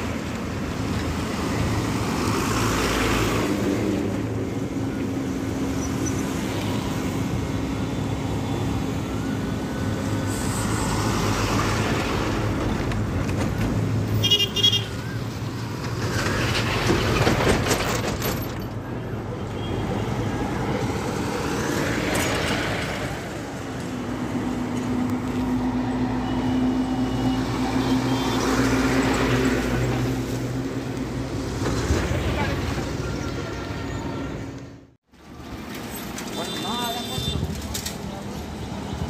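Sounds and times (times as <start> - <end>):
trucks and traffic passing: 0.0 - 39.0
vehicle horn toot: 36.4 - 37.5.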